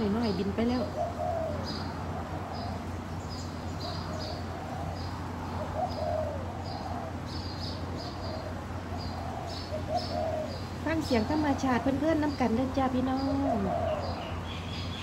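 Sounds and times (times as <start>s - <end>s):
doves cooing: 0.0s - 15.0s
small birds chirping: 0.0s - 15.0s.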